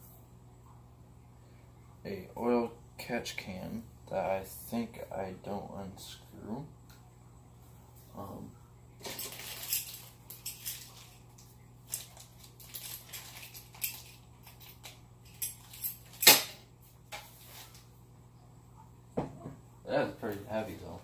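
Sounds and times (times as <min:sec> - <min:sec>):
metallic clicks and clinks: 0:09.0 - 0:11.2, 0:11.9 - 0:16.5
packaging rustling: 0:09.0 - 0:11.2, 0:11.9 - 0:14.6.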